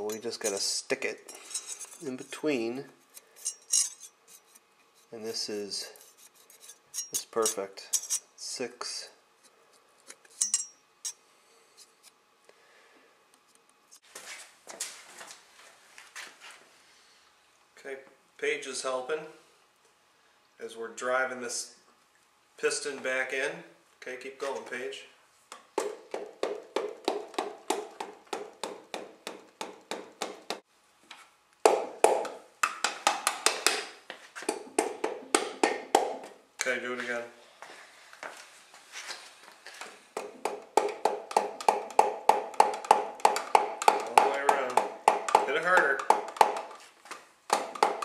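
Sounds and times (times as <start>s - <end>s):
rustling and scraping of tools: 0.0s - 8.3s, 9.4s - 12.2s, 13.4s - 17.2s, 37.0s - 40.1s
hammer handle tapping on metal: 40.2s - 46.8s.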